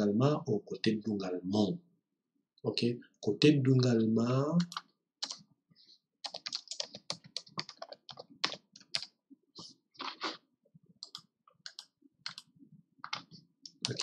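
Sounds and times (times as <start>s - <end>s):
keyboard typing clicks: 6.2s - 9.1s, 11.0s - 14.0s.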